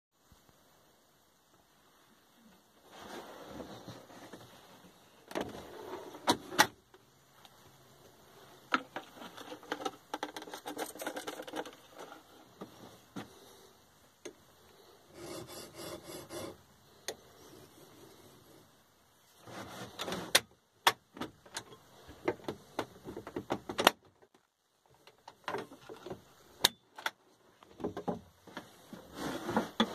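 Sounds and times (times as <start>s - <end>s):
chisel rasping on sharpening plate: 15.2s - 16.6s.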